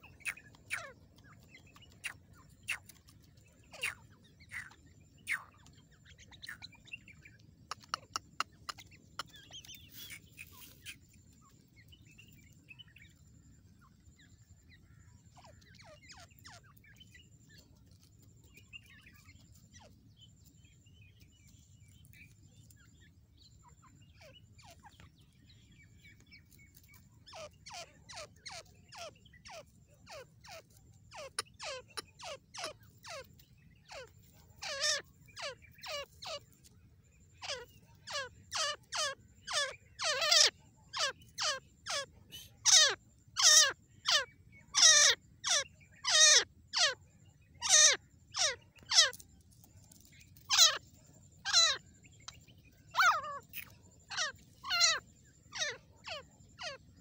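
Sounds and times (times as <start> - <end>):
faint bird chirps: 0.0 - 57.0
francolin calling: 0.0 - 57.0.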